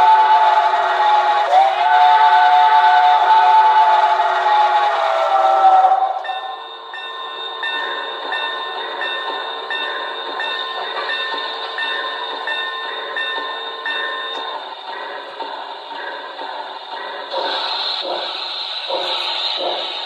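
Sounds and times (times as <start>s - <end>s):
train whistle: 0.0s - 6.6s
model train running: 0.0s - 20.0s.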